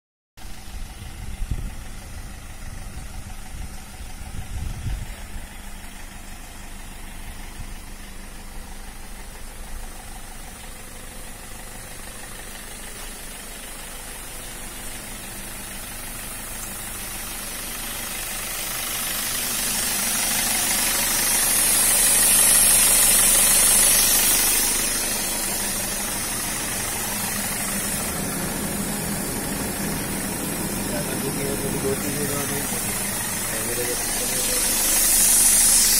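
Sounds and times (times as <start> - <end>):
car engine idling: 0.4 - 35.9
hiss: 10.0 - 35.9.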